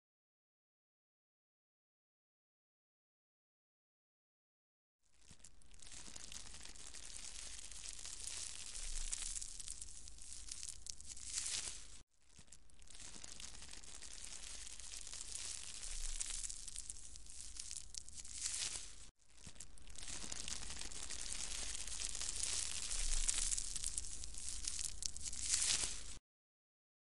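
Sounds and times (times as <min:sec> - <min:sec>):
snail crunching petals: 0:05.1 - 0:26.2.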